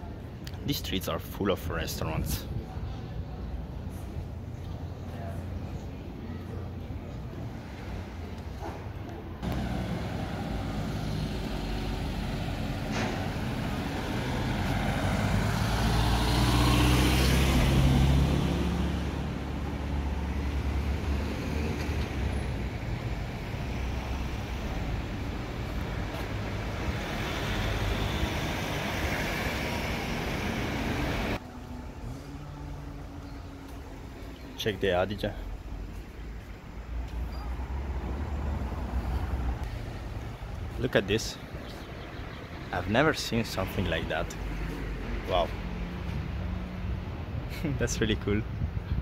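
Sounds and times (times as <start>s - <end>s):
road traffic: 0.0s - 49.0s
vehicle passing close: 9.4s - 34.4s.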